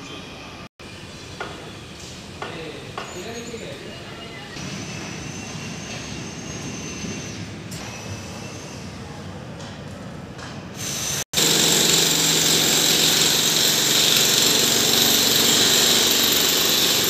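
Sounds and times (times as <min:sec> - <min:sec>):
high-pitched power tool running: 0:10.8 - 0:17.0.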